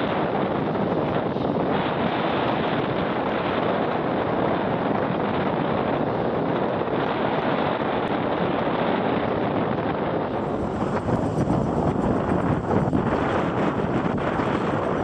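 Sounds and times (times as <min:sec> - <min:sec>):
wind buffeting microphone: 0:00.0 - 0:15.0
surf breaking on beach: 0:10.3 - 0:15.0.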